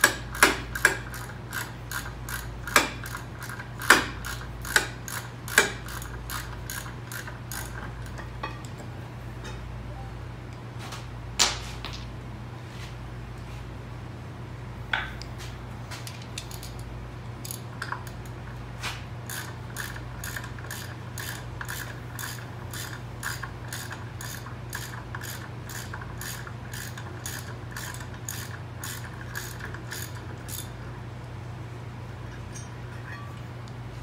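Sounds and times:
hand ratchet clicking: 0:00.0 - 0:08.2, 0:19.3 - 0:30.7.

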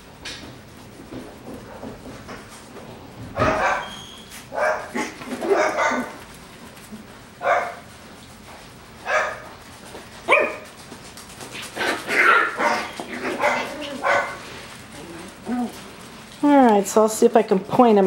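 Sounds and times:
dog barking: 0:03.4 - 0:03.9, 0:04.5 - 0:06.2, 0:07.4 - 0:07.8, 0:09.0 - 0:09.4, 0:10.3 - 0:10.6, 0:12.2 - 0:14.4.

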